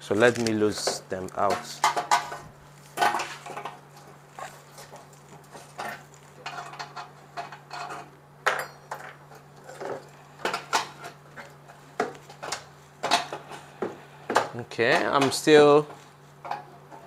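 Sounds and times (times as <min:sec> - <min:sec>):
spanner clinking and scraping on nuts: 0:03.0 - 0:13.7.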